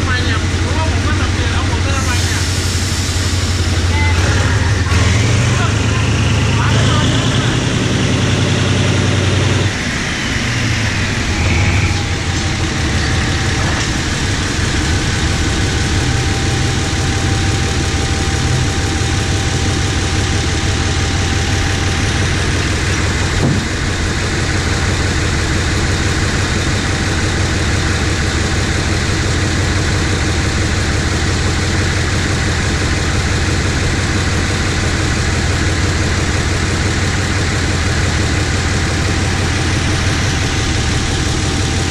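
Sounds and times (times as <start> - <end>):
locomotive engine drone: 0.0 - 41.9
short knock: 23.4 - 23.7.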